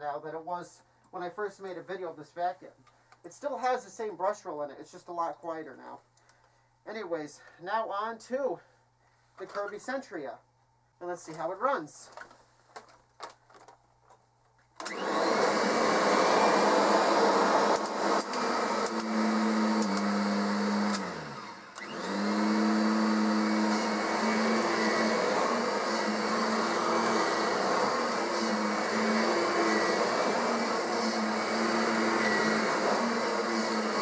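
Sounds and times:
vacuum cleaner running on carpet: 14.8s - 34.0s.

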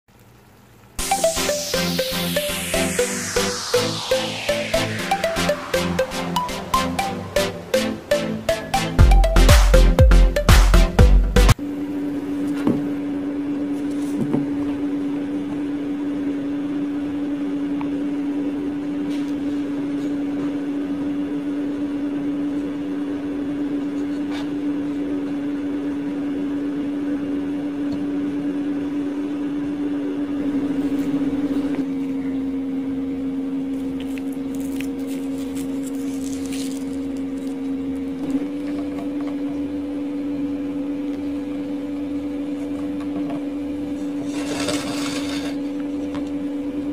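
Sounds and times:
steady machine hum: 1.0s - 13.6s.

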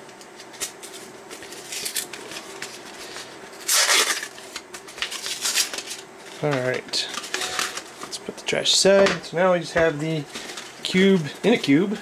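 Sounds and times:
paper rustling and scraping: 0.4s - 8.2s
paper ripping: 3.6s - 6.5s.

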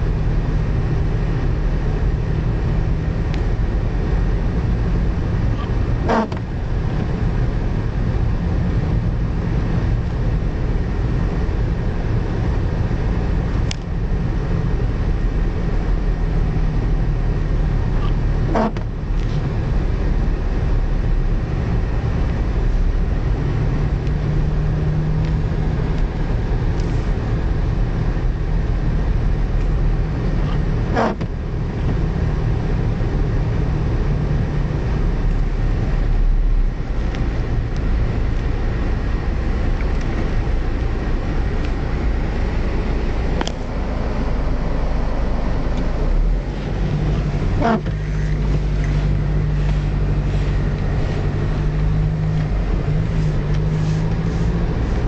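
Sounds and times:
car engine rumble: 0.0s - 55.0s
road noise: 0.0s - 55.0s
short squeak: 18.0s - 18.8s, 47.5s - 48.2s.

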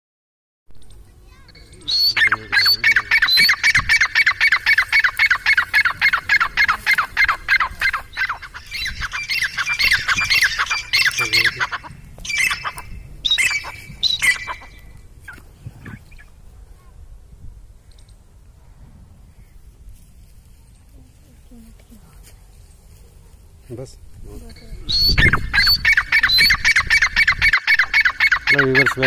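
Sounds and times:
bird calling high downward notes: 1.5s - 16.4s, 24.9s - 29.0s.

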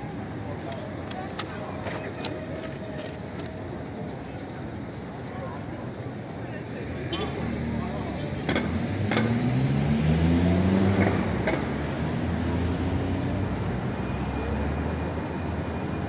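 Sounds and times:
low rumble of traffic: 0.0s - 16.0s
vehicle engine accelerating: 7.4s - 15.8s.

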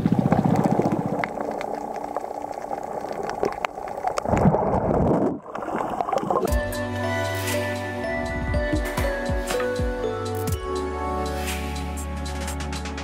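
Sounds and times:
underwater rush of water: 0.0s - 6.6s
bubbles: 0.0s - 6.7s.

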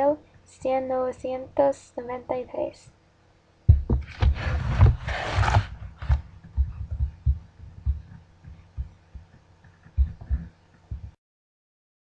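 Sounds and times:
faint steady hum: 0.0s - 11.2s
low muffled thumps: 3.7s - 11.2s.

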